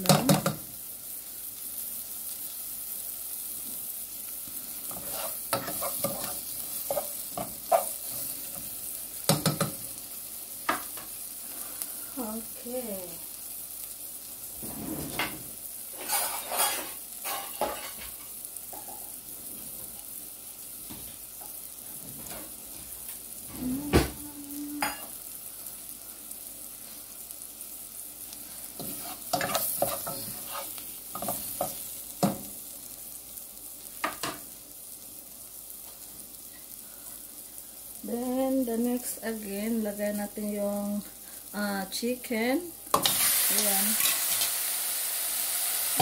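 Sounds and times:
food sizzling in a saucepan: 0:00.0 - 0:46.0
spoon scraping a pan: 0:04.8 - 0:08.7, 0:16.0 - 0:19.1, 0:28.6 - 0:32.4, 0:42.9 - 0:44.6.

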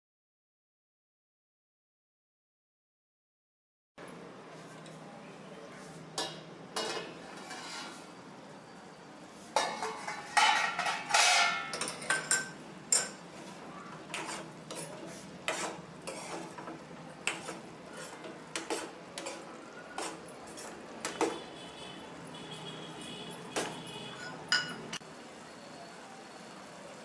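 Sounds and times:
steel spoon scraping a pan: 0:05.8 - 0:08.3, 0:09.4 - 0:22.4, 0:23.1 - 0:25.0
metal lid clanging: 0:09.6 - 0:13.2.

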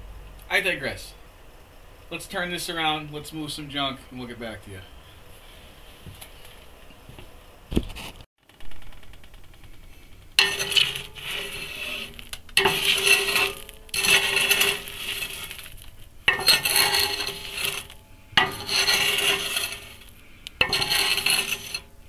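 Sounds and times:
poker scraping ash in metal stove: 0:10.3 - 0:22.0
metallic ringing of stove: 0:10.4 - 0:22.0.

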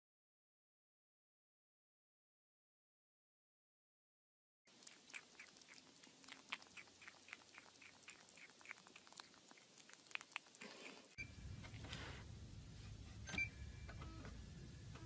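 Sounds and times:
low hum: 0:11.2 - 0:15.0.

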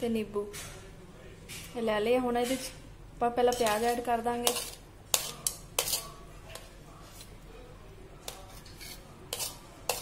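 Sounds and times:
spoon scraping a steel bowl: 0:03.5 - 0:07.4, 0:08.2 - 0:10.0.

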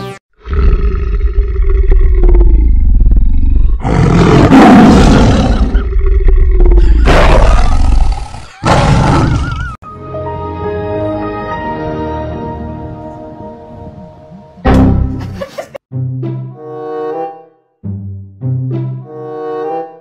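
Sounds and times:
soft music: 0:09.8 - 0:20.0.

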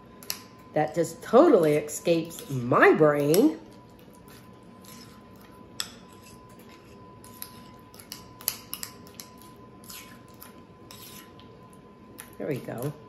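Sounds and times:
utensil mashing in ceramic bowl: 0:04.1 - 0:11.4.

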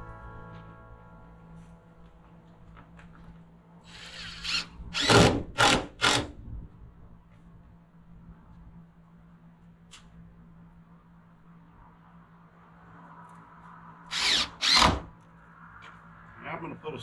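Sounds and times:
cordless drill driving screw into wood: 0:03.9 - 0:06.4, 0:14.1 - 0:15.1.

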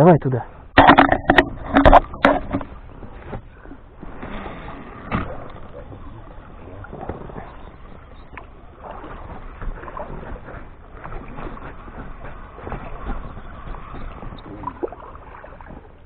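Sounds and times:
oar strokes: 0:00.5 - 0:16.0
water sloshing: 0:00.5 - 0:16.0
knocks against boat: 0:00.8 - 0:03.5.

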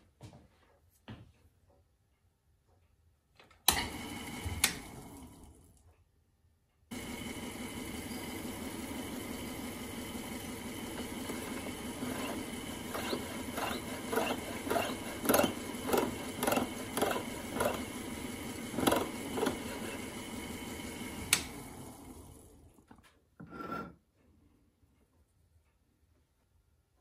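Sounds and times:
lathe humming: 0:06.9 - 0:22.7
piercing saw rasping through wire: 0:11.0 - 0:20.2.

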